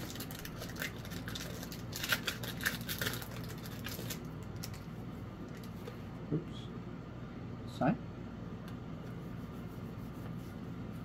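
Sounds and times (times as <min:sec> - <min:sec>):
foil wrapper crinkling: 0:00.0 - 0:04.9.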